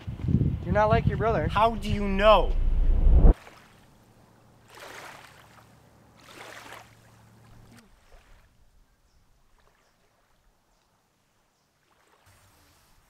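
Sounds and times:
small waves lapping on shore: 0:03.4 - 0:13.0.

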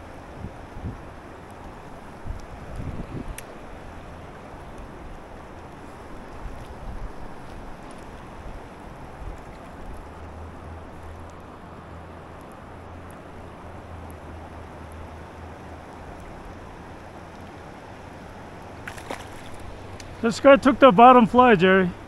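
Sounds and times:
river water rushing: 0:00.0 - 0:22.0.

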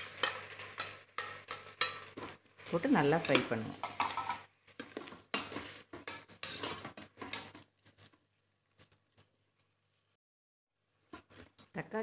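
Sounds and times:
spatula scraping metal pot: 0:00.0 - 0:08.1.

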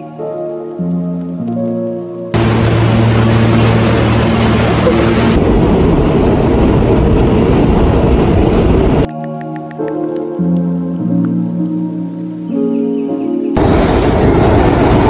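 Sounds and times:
background music: 0:00.0 - 0:02.4, 0:09.1 - 0:13.6
subway train rumble: 0:02.4 - 0:09.1, 0:13.6 - 0:15.0.

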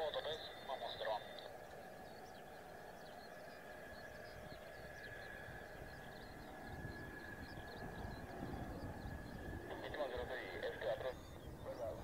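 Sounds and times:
distant jet engine rumble: 0:00.0 - 0:12.0
steady high whine: 0:00.0 - 0:12.0.

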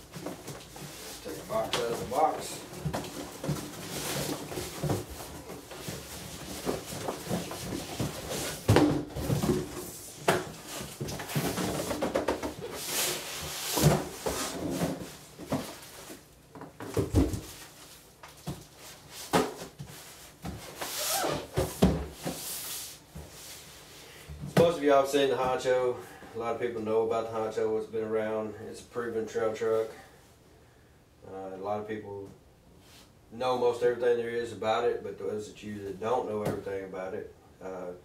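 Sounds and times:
cardboard boxes scraping and rustling: 0:00.1 - 0:16.2, 0:18.8 - 0:23.9.

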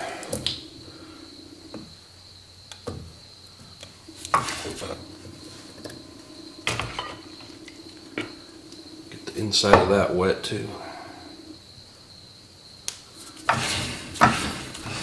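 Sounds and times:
low hum: 0:00.0 - 0:02.2, 0:03.9 - 0:11.8
faint high whine: 0:00.0 - 0:15.0.

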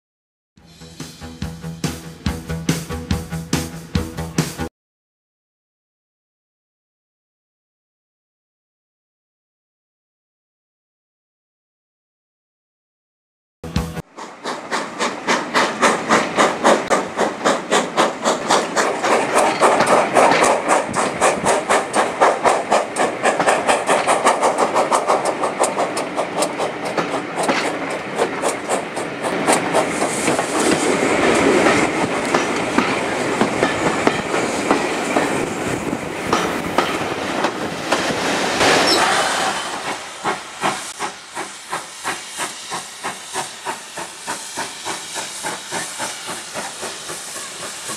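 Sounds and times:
steam locomotive exhaust beats: 0:00.6 - 0:04.7, 0:13.6 - 0:47.9
train running noise: 0:13.6 - 0:47.9
steam hissing: 0:14.1 - 0:47.9.

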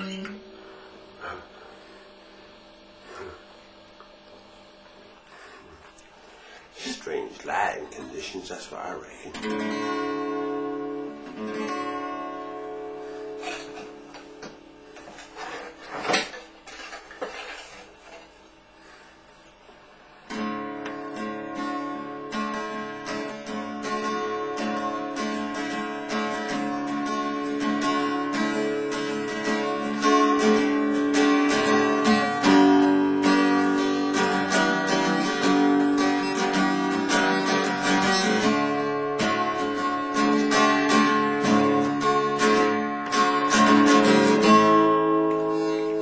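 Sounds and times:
acoustic guitar strumming: 0:00.0 - 0:02.1, 0:06.4 - 0:17.8, 0:20.3 - 0:46.0.

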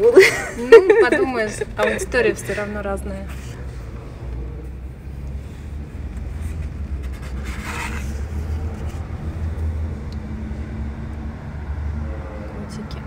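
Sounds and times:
magazine page turning: 0:06.3 - 0:09.1.

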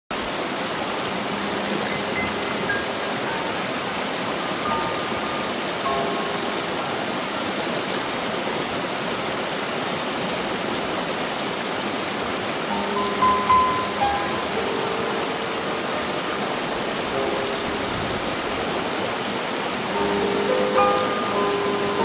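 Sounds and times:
creek rushing over boulders: 0:00.1 - 0:22.0
soft music notes: 0:01.0 - 0:07.6, 0:12.7 - 0:19.1, 0:19.7 - 0:22.0.

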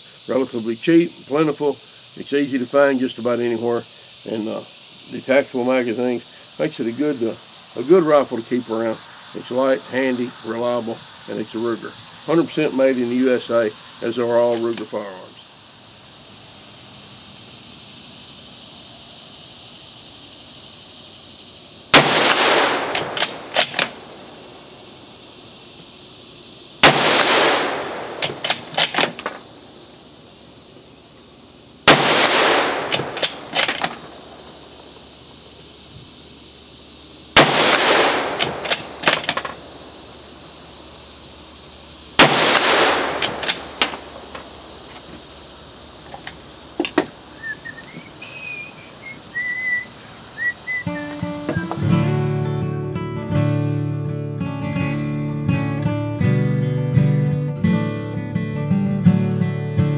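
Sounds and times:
rifle shots with echo: 0:22.0 - 0:24.2, 0:26.8 - 0:29.4, 0:31.9 - 0:34.4, 0:37.4 - 0:39.5, 0:42.2 - 0:44.2
rifle bolt clicks: 0:22.9 - 0:24.0, 0:32.8 - 0:34.0, 0:37.7 - 0:39.5, 0:42.6 - 0:44.5.

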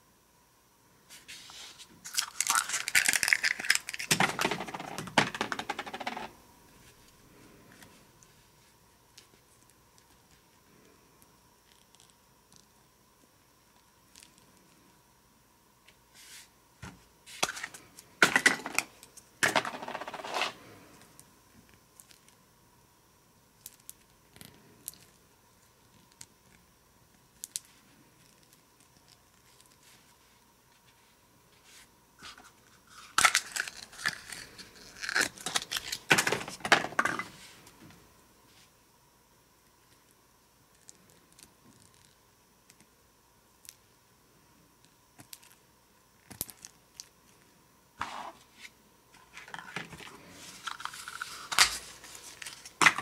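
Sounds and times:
plastic wrapping crinkling and tearing: 0:02.0 - 0:04.4.

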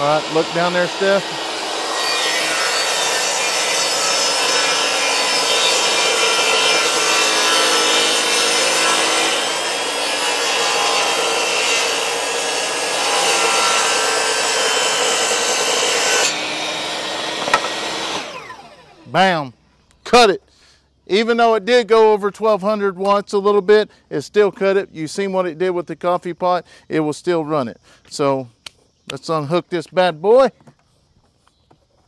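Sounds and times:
table saw cutting wood: 0:00.0 - 0:19.1.

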